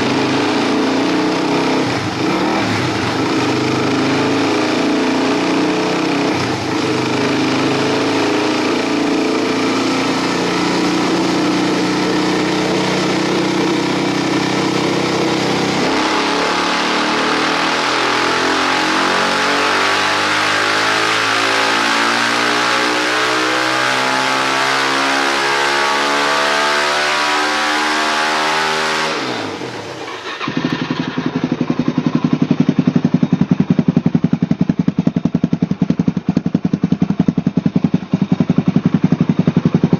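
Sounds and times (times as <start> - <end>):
motorcycle engine revving on dyno: 0.0 - 39.9
motorcycle engine pulsing beat: 30.6 - 39.9.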